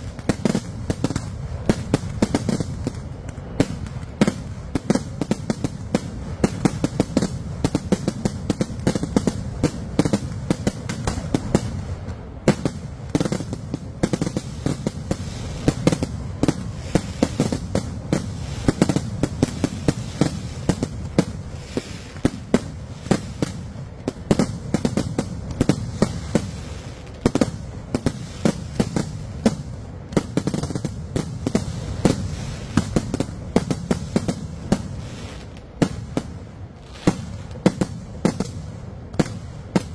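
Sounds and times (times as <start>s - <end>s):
fireworks bangs and cracks: 0.0s - 39.9s.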